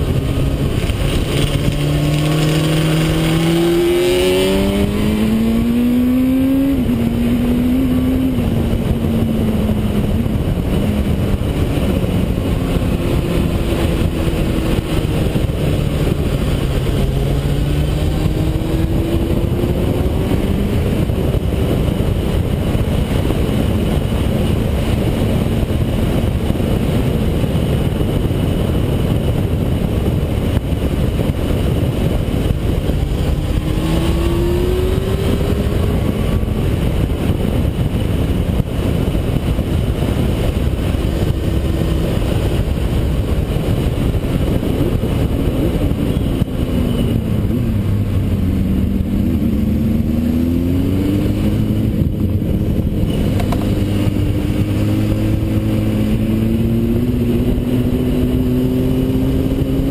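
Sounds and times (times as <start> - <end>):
motorcycle engine revving: 0.0 - 59.9
wind rush on microphone: 0.0 - 59.9.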